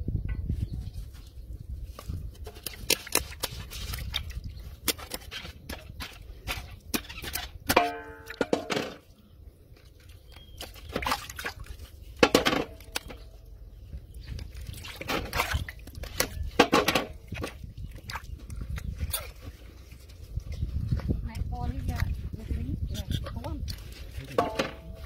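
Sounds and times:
water splashing in metal basin: 2.5 - 9.1, 10.2 - 13.4, 14.3 - 18.8.

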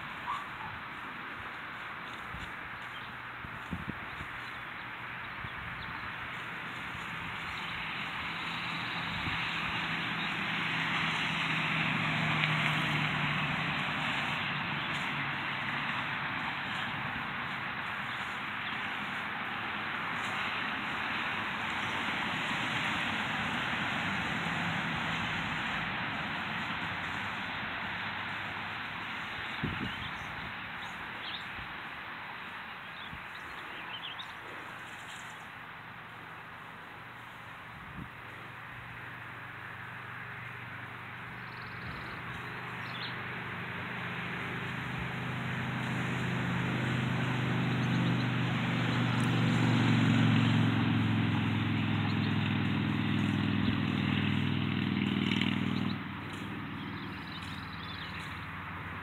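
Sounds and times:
small birds chirping: 0.0 - 10.5, 13.8 - 19.3, 29.0 - 35.5, 40.8 - 43.4, 47.4 - 49.4, 52.0 - 54.4, 55.3 - 59.0
engine running: 0.0 - 31.7, 33.6 - 59.0
steady outdoor hiss: 0.0 - 59.0.

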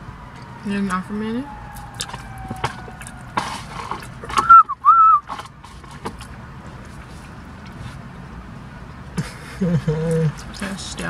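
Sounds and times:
whistle-like squeaks: 4.4 - 5.3.

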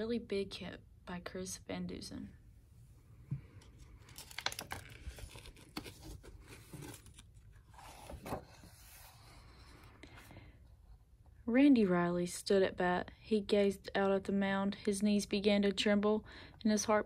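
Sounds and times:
book pages rustling: 3.6 - 10.3.

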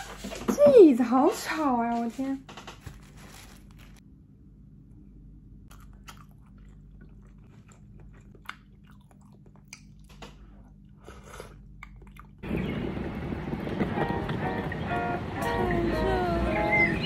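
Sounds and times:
low room hum: 0.0 - 17.0
person chewing food: 5.6 - 12.4.

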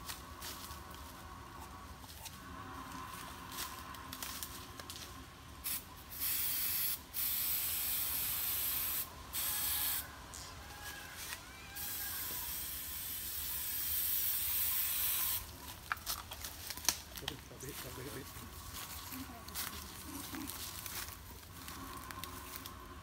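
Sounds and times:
aerosol spray hissing: 5.6 - 10.0, 11.8 - 15.5.

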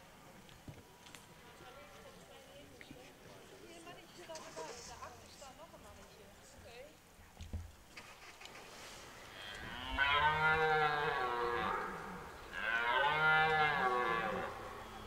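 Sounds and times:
red deer stag roaring: 9.4 - 15.0.

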